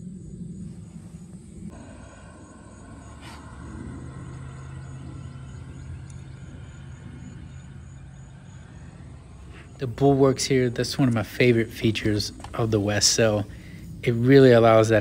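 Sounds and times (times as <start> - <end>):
insect chirping: 0.0 - 15.0
steady low drone: 0.0 - 15.0
faint clicks: 5.8 - 6.5.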